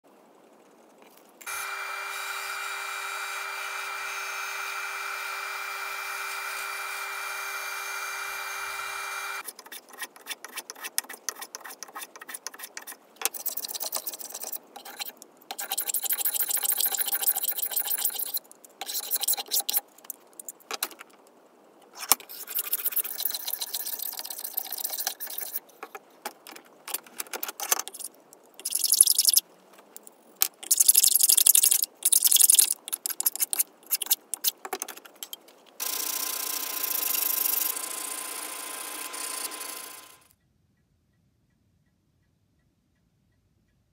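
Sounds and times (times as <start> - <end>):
bandsaw cutting wood: 1.4 - 9.4, 35.8 - 40.3
hand plane shaving wood: 8.7 - 19.8.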